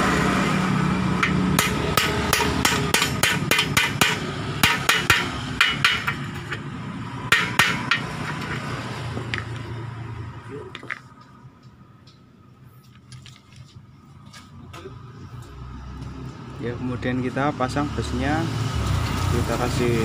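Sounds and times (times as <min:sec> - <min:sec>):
hammer striking metal: 0:01.2 - 0:08.6.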